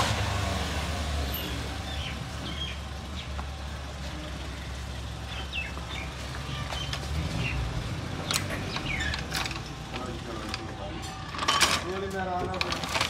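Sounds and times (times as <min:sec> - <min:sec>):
car engine idling: 0:00.0 - 0:11.3
small birds chirping: 0:01.3 - 0:09.9.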